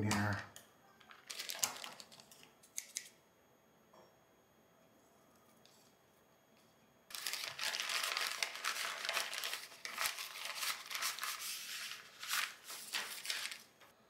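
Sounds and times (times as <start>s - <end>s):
plastic mailer bag crinkling: 1.0s - 2.4s, 7.1s - 13.8s.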